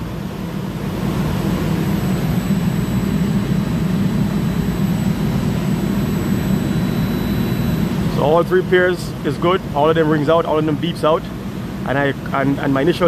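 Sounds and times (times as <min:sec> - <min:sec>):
low machinery drone: 0:00.0 - 0:13.0.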